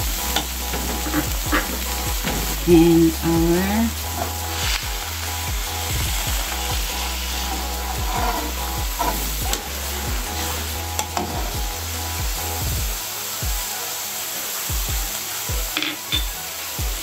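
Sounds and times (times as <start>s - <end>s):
low hum: 0.0s - 13.0s
sauce sizzling in a wok: 0.0s - 17.0s
metal spatula scraping a pan: 6.2s - 11.5s.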